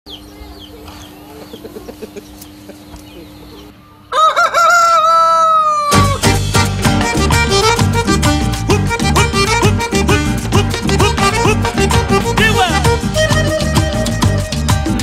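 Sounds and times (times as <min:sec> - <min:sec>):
faint bird chirping: 0:00.1 - 0:04.2
rooster crowing: 0:04.1 - 0:06.3
loud music: 0:06.0 - 0:15.0.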